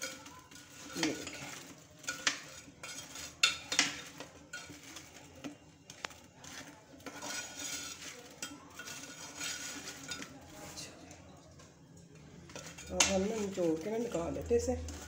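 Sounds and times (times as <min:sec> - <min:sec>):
utensil scraping a dish: 0:00.0 - 0:10.9
utensil clinking against a dish: 0:00.0 - 0:15.0.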